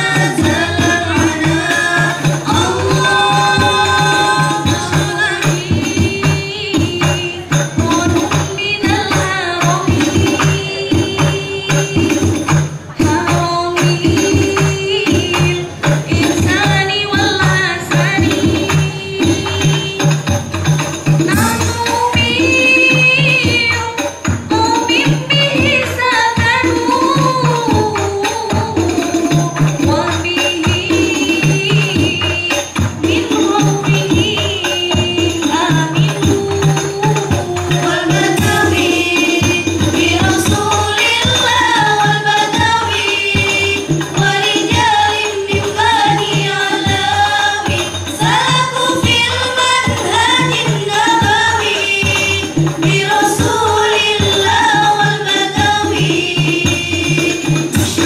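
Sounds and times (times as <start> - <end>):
hand-played frame drums: 0.0 - 58.0
women singing in unison: 0.0 - 58.0.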